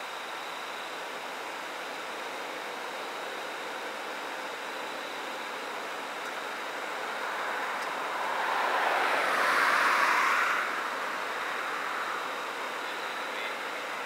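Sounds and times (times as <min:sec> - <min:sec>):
vehicle passing by: 0:07.2 - 0:12.0.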